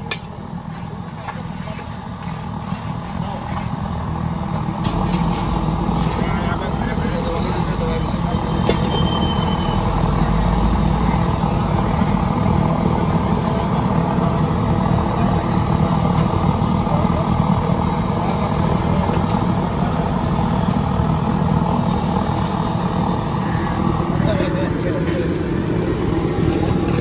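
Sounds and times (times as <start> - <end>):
vehicle traffic: 2.5 - 15.4.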